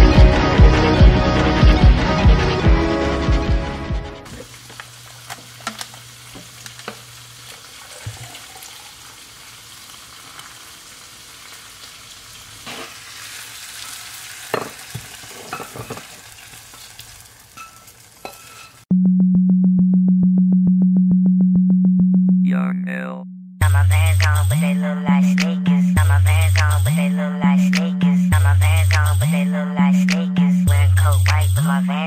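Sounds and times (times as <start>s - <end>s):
drink pouring into a mug: 6.7s - 9.1s
loud low pulsing electronic tone: 18.9s - 24.2s.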